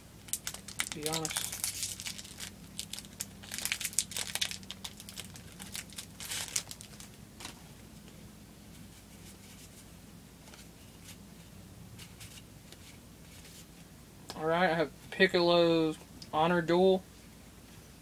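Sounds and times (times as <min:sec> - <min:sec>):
wrapper crinkling: 0:00.3 - 0:07.6.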